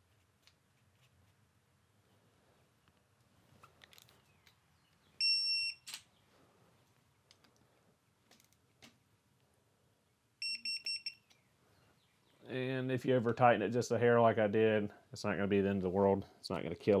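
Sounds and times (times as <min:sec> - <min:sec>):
torque wrench beeping: 0:10.4 - 0:11.3.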